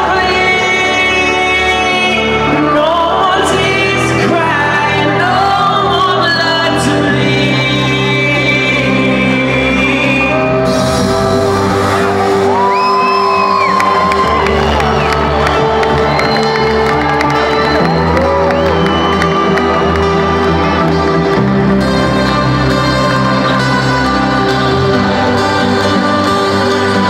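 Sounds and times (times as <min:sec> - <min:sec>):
man singing into microphone: 0:00.0 - 0:11.0
trance music over loudspeakers: 0:00.0 - 0:27.0
audience shouting along: 0:10.2 - 0:21.4.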